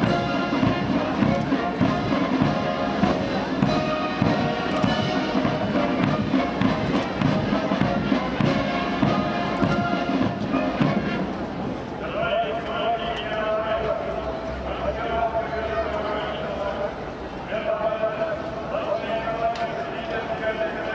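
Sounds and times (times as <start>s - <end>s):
brass band playing: 0.0s - 12.5s.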